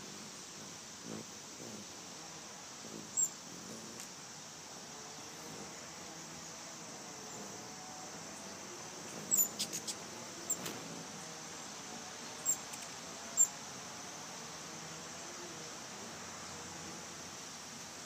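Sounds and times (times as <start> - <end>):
steady hiss: 0.0 - 18.0
hummingbird chip calls: 2.7 - 4.0, 8.3 - 10.7, 12.2 - 13.6.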